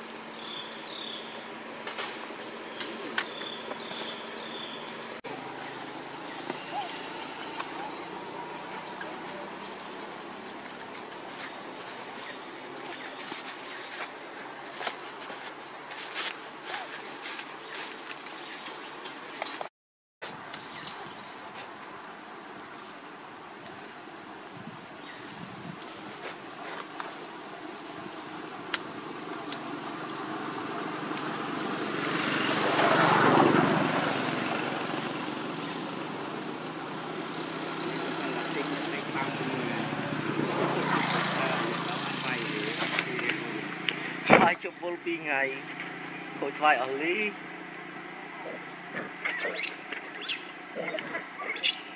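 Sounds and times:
high-pitched insect drone: 0:00.0 - 0:19.4, 0:20.3 - 0:48.0
vehicle passing by: 0:03.8 - 0:13.0, 0:29.6 - 0:44.3.

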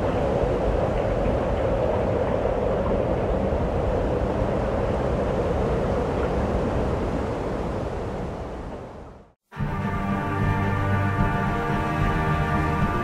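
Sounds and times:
steady rushing noise: 0:00.0 - 0:13.0
music: 0:09.5 - 0:13.0.

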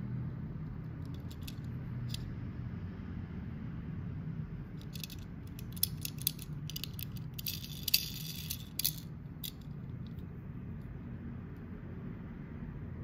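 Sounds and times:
model car clicks and rattles: 0:01.0 - 0:02.2, 0:04.8 - 0:10.3.

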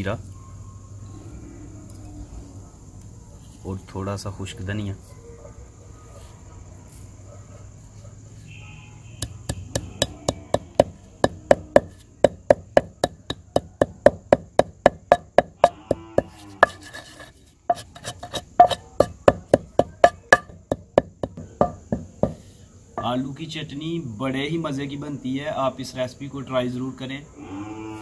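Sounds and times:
pestle pounding in stone mortar: 0:09.5 - 0:22.4.

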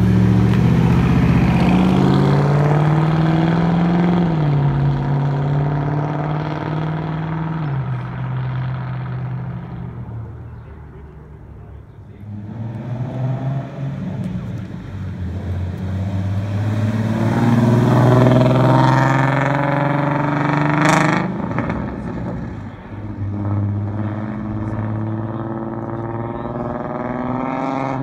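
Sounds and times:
sports car engines revving: 0:00.0 - 0:28.0.

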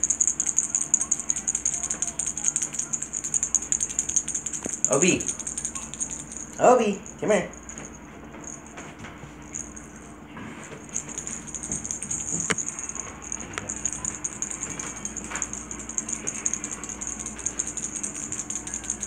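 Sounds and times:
jingling cat toy rattling: 0:00.0 - 0:19.0.

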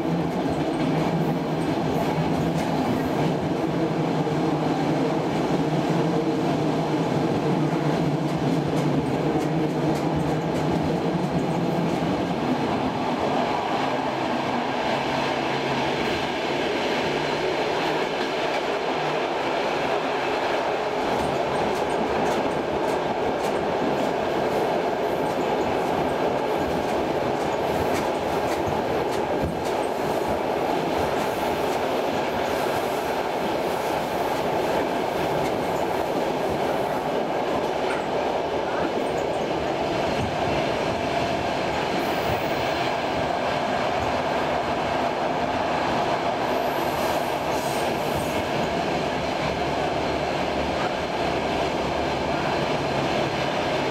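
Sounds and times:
train wheels rolling on rails: 0:00.0 - 0:53.9
track clicking: 0:07.6 - 0:14.9, 0:19.9 - 0:51.8.

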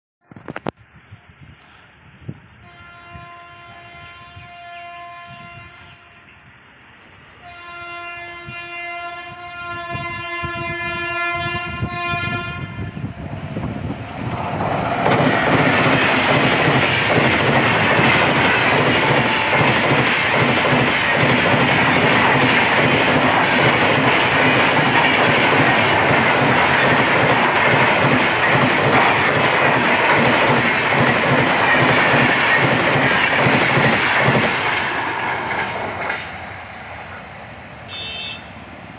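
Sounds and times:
locomotive horn blasts: 0:02.6 - 0:06.3, 0:07.4 - 0:13.0, 0:37.9 - 0:38.6
train wheels rumbling on rail: 0:05.2 - 0:38.9
clickety-clack over rail joints: 0:13.4 - 0:37.2.

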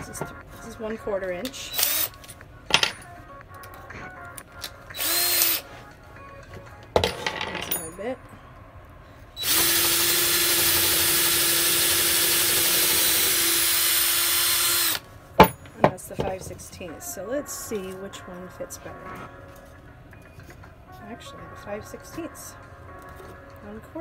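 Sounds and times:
cordless drill whine: 0:01.7 - 0:02.2, 0:05.0 - 0:05.6, 0:09.4 - 0:15.0.

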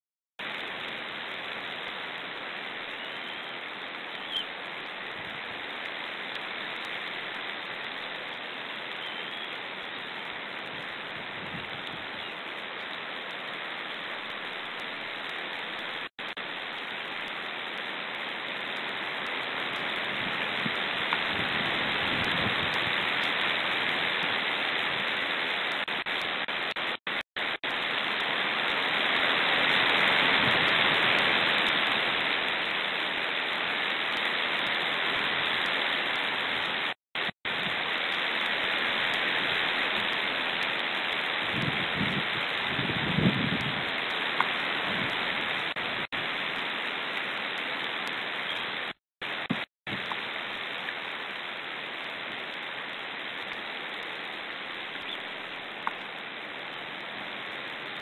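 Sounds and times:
wind noise on microphone: 0:10.7 - 0:12.3, 0:19.8 - 0:25.1, 0:29.7 - 0:31.8, 0:41.4 - 0:46.4, 0:49.4 - 0:50.2.

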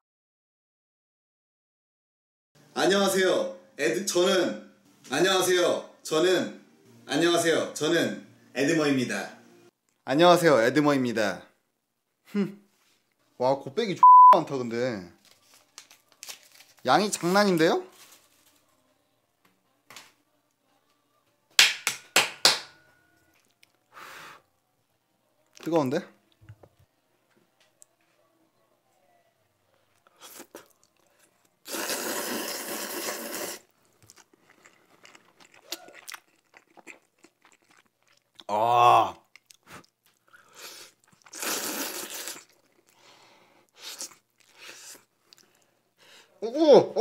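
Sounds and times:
noodle slurping: 0:31.6 - 0:37.7, 0:39.8 - 0:43.0, 0:43.7 - 0:45.1.

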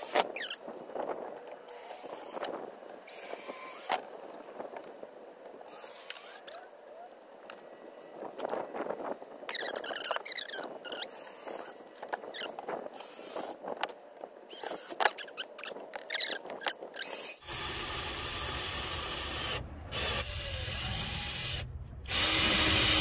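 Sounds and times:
cordless drill boring into wood: 0:03.1 - 0:04.0, 0:14.5 - 0:15.2, 0:17.0 - 0:23.0.

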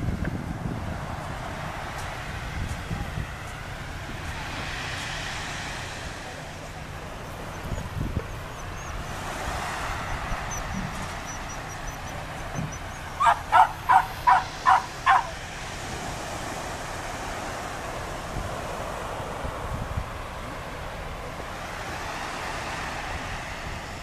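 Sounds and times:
dog barking: 0:13.2 - 0:15.4.

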